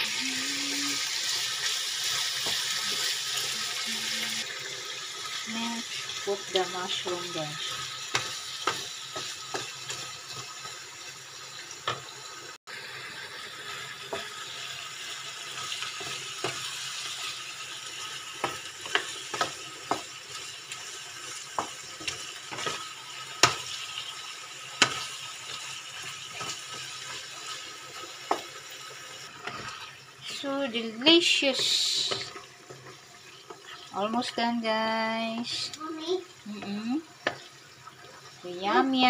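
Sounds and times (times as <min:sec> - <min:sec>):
food sizzling in a wok: 0:00.0 - 0:39.0
wooden spatula knocking on pan: 0:18.3 - 0:20.2.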